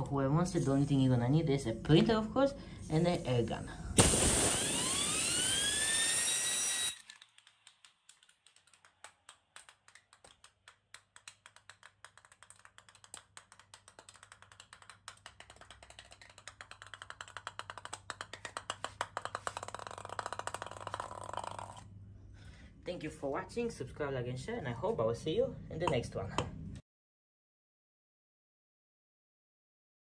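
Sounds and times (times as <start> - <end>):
fan wheel whine: 2.9 - 7.1
compressed air hissing: 4.0 - 6.4
plastic wheel rattling on tile floor: 13.6 - 21.8.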